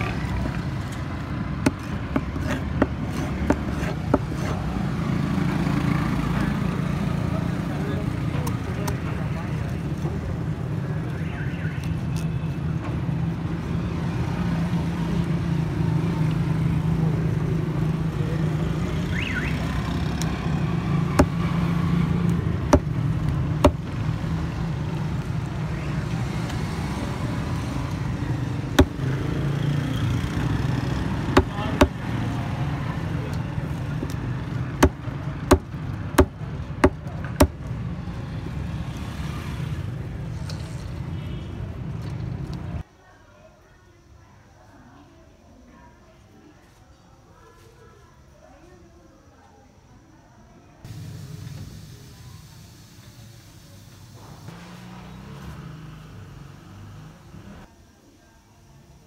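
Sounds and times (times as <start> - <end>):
street traffic hum: 0.0 - 59.0
knife chopping on wooden board: 1.6 - 4.6, 21.2 - 21.4, 22.7 - 23.0, 23.6 - 23.9, 28.8 - 29.0, 31.3 - 32.0, 34.8 - 37.6.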